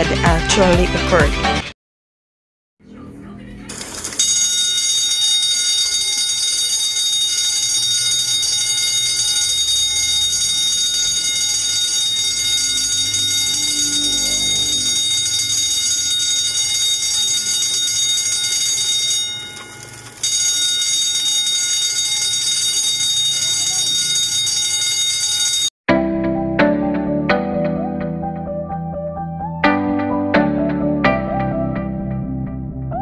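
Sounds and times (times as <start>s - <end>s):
fire alarm bell ringing: 3.7s - 25.7s.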